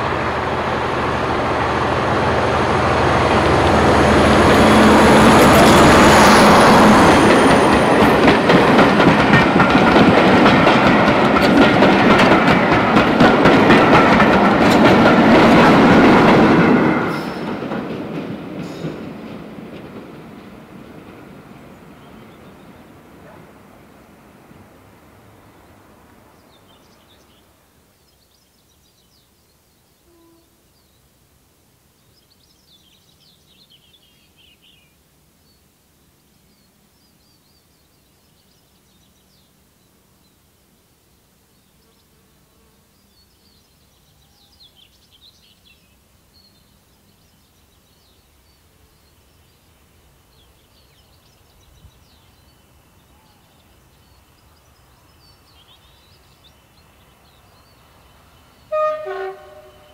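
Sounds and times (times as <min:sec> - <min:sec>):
diesel locomotive rumble: 0:00.0 - 0:26.4
passing train: 0:00.0 - 0:59.9
songbirds twittering: 0:20.9 - 0:24.6, 0:25.2 - 0:31.2, 0:31.8 - 0:59.9.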